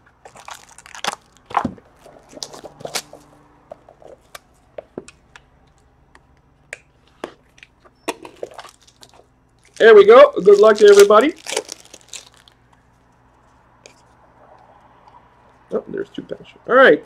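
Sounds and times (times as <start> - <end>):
cardboard and wrapper rustling: 0.2 - 3.3, 8.2 - 12.6.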